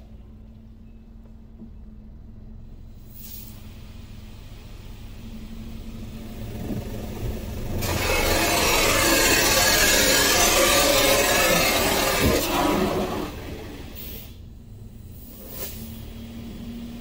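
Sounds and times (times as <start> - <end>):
car wash machinery rumble: 0.0 - 17.0
rushing spray hiss: 7.8 - 14.4.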